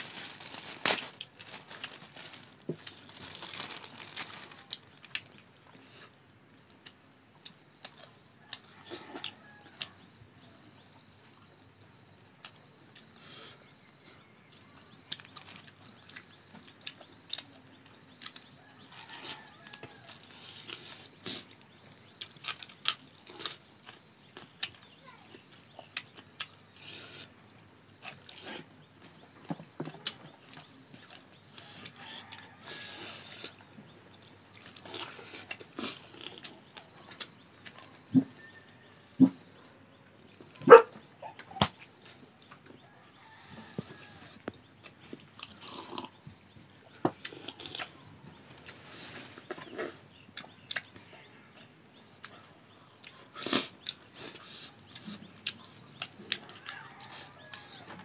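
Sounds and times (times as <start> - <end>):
plastic bag crinkling: 0.0 - 4.7.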